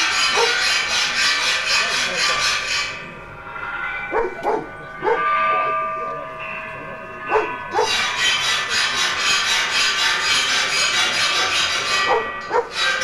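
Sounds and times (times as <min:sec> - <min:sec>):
metal rattling and scraping: 0:00.0 - 0:05.7, 0:07.2 - 0:13.0
metal strikes with ringing tones: 0:00.0 - 0:13.0.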